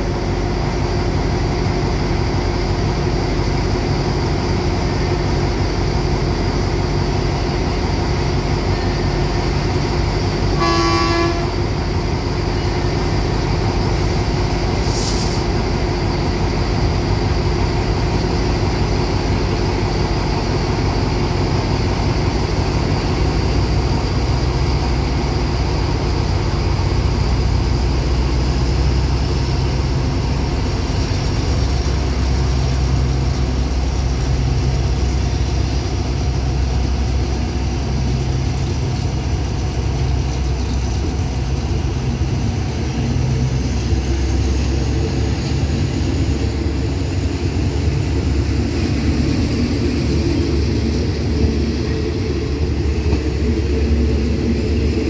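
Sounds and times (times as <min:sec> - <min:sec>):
diesel locomotive engine drone: 0:00.0 - 0:55.0
train horn blast: 0:10.4 - 0:11.8
air hiss: 0:14.8 - 0:15.6.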